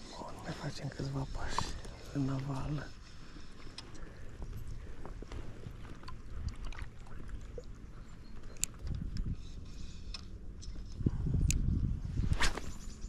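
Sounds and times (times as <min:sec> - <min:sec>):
footsteps wading through water: 0:01.6 - 0:09.1.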